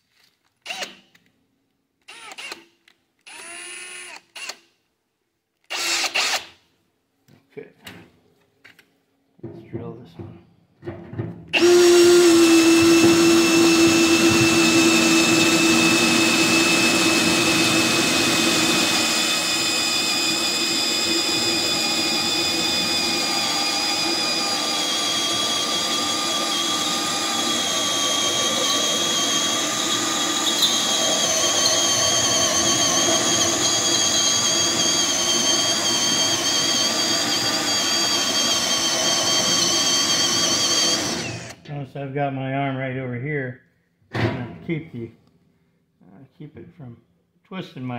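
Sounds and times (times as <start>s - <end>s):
cordless drill boring through steel: 0.6s - 1.0s, 2.0s - 4.6s, 5.7s - 6.5s, 11.6s - 41.6s.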